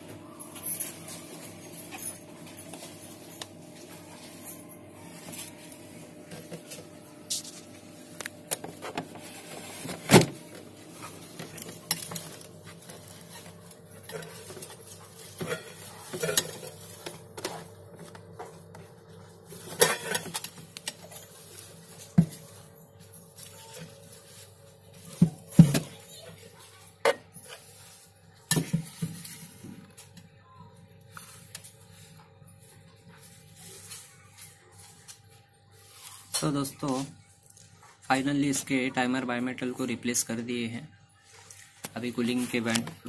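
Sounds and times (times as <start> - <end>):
refrigerator hum: 0.0 - 43.0
steel bowls knocking and clinking: 11.0 - 24.0.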